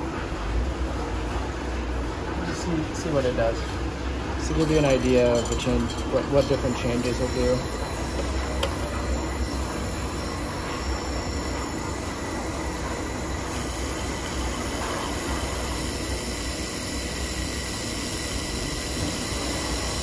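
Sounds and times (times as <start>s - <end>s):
laser welder hiss and hum: 4.5s - 20.0s.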